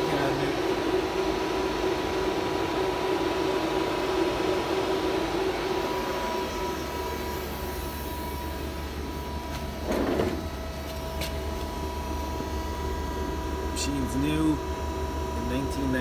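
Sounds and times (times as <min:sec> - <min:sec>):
thin even whine: 0:00.0 - 0:14.7
low hum: 0:00.0 - 0:15.9
lathe machinery hum and hiss: 0:00.0 - 0:16.0
mid-pitched drone: 0:00.0 - 0:16.0.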